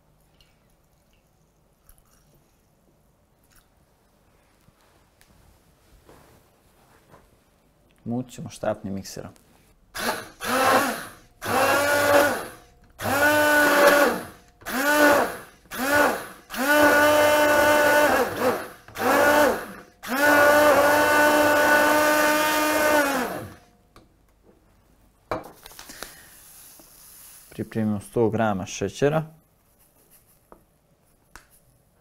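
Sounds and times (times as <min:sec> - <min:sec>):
immersion blender whirring: 0:10.0 - 0:23.7.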